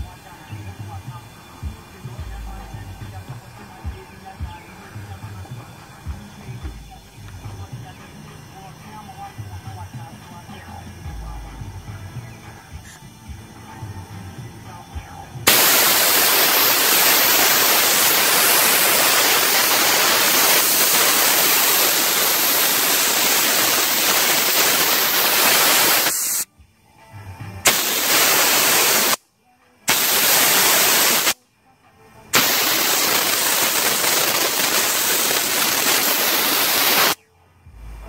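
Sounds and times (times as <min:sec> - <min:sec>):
compressed air hissing from valve: 0:00.0 - 0:26.5, 0:27.6 - 0:29.2, 0:29.9 - 0:31.4, 0:32.3 - 0:37.2.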